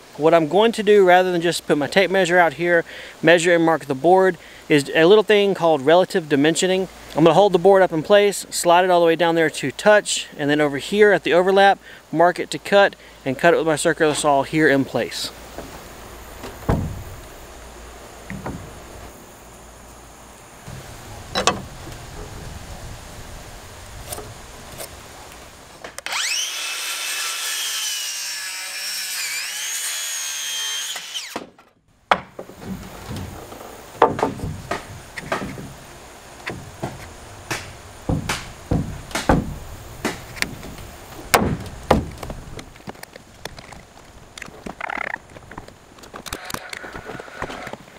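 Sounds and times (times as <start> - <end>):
lumber knocks and clicks: 16.4 - 17.2, 18.2 - 18.8, 20.7 - 22.0, 31.4 - 35.8, 36.4 - 43.8
circular saw cutting wood: 26.0 - 31.5.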